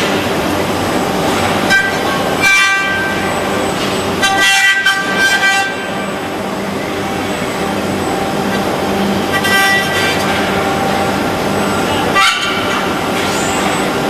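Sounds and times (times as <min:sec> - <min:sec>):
high multi-tone whine: 0:00.0 - 0:14.0
machine noise: 0:00.0 - 0:14.0.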